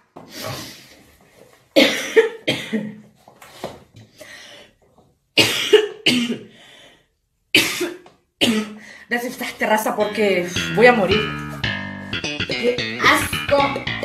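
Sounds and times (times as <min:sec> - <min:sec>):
woman coughing: 0:01.8 - 0:03.0, 0:05.4 - 0:06.5, 0:07.6 - 0:08.8.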